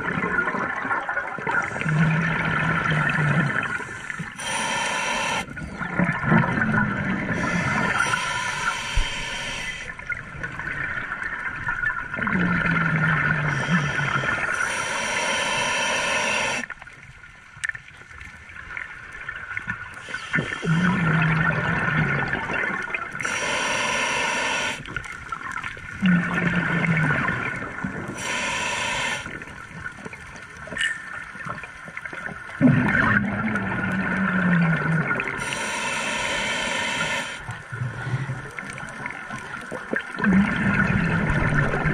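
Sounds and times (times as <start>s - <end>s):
exhaled air bubbling: 0.0s - 17.0s, 17.6s - 41.9s
regulator breathing hiss: 3.7s - 5.5s, 7.4s - 10.0s, 13.5s - 16.7s, 20.0s - 21.0s, 23.2s - 25.0s, 28.1s - 29.5s, 35.4s - 37.5s.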